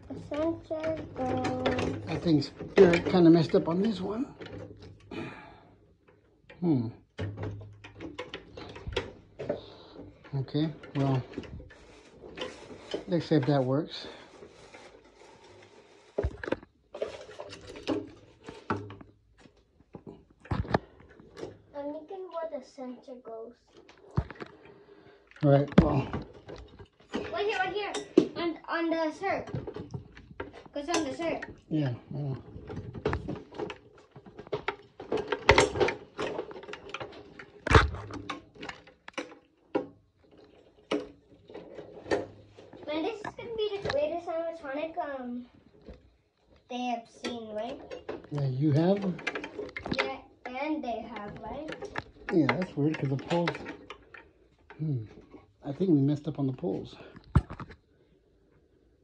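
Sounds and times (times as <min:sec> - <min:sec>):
clicks and knocks on metal frame: 0:00.0 - 0:05.2, 0:06.1 - 0:15.0, 0:29.4 - 0:44.1, 0:47.2 - 0:55.4
metal poles clattering: 0:00.0 - 0:05.4, 0:06.1 - 0:21.8, 0:25.4 - 0:45.2, 0:47.2 - 0:55.7.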